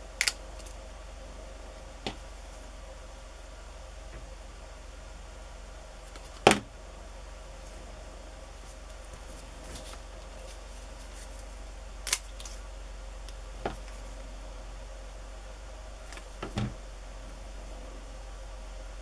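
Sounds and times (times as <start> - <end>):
steady low hum: 0.0 - 19.0
hands handling paper: 8.6 - 12.6.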